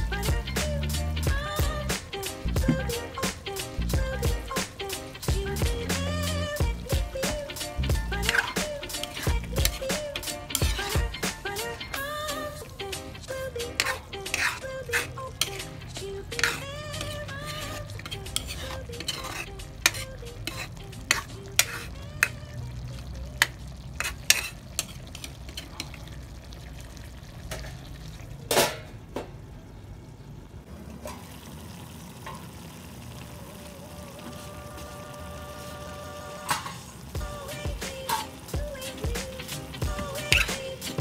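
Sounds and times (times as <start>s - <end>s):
simmering sizzle: 0.0s - 41.0s
metal spatula clanking in wok: 13.8s - 15.7s, 16.3s - 22.4s, 23.4s - 26.0s, 40.0s - 40.8s.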